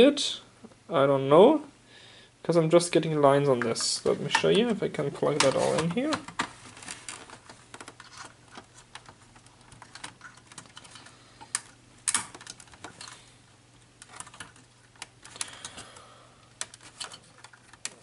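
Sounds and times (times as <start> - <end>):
low electrical hum: 0.0 - 18.0
cables and connectors clicking: 3.6 - 13.2, 13.8 - 18.0.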